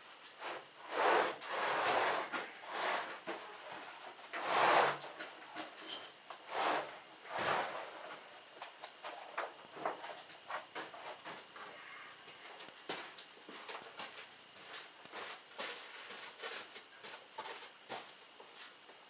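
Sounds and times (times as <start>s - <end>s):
wood scraping on wood: 0.4s - 5.3s, 5.9s - 8.0s.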